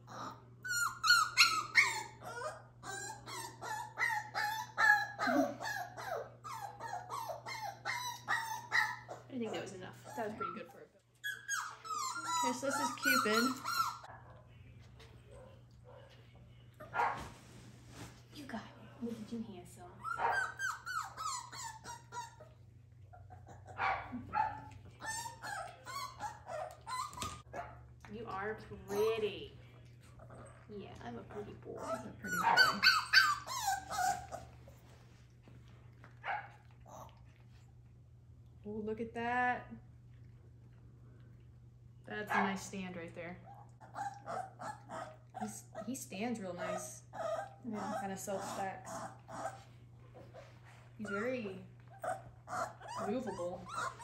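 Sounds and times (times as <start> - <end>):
puppy yelping: 0.0 - 14.2, 20.0 - 27.7, 31.3 - 34.8, 43.5 - 45.9, 46.6 - 51.3, 51.9 - 54.0.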